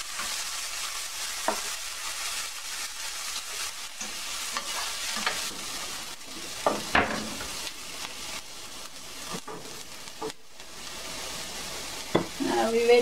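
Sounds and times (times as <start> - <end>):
onion sizzling in hot oil: 0.0 - 13.0
spatula scraping and knocking pan: 1.4 - 1.8, 3.5 - 7.6.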